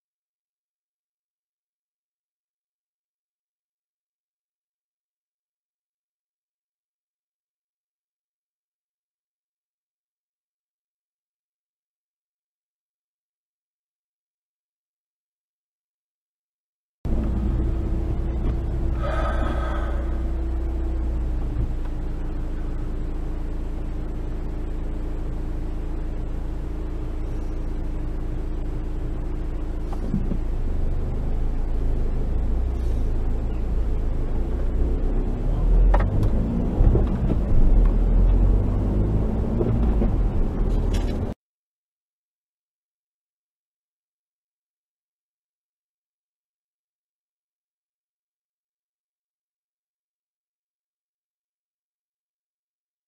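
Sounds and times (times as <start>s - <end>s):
car engine and road noise: 17.1s - 41.4s.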